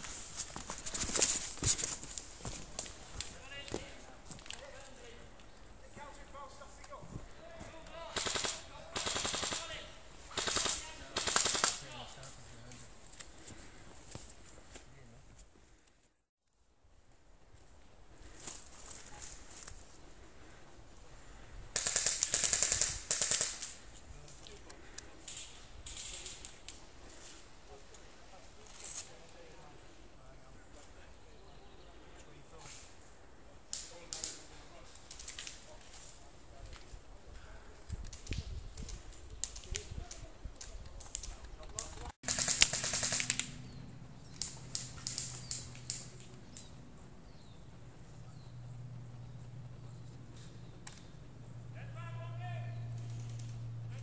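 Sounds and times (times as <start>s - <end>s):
airsoft rifle full-auto bursts: 8.1s - 11.8s, 21.8s - 23.8s, 42.2s - 43.6s
low steady hum: 43.3s - 54.0s
sharp clicks and snaps: 44.3s - 46.7s.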